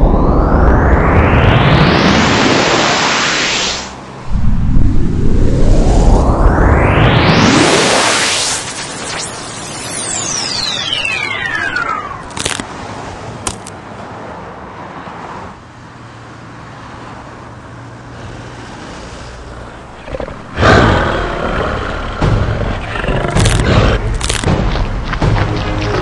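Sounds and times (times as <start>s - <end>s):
loud burst: 1.2s - 12.4s
low rumbling with hum: 4.2s - 7.4s
falling whistle: 6.9s - 12.3s
sharp hits: 20.1s - 26.0s.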